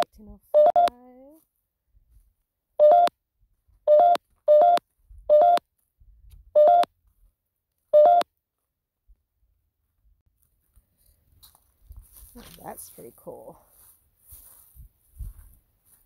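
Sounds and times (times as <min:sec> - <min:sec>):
electronic two-note beeps: 0:02.8 - 0:03.1, 0:03.9 - 0:05.6, 0:06.6 - 0:06.9.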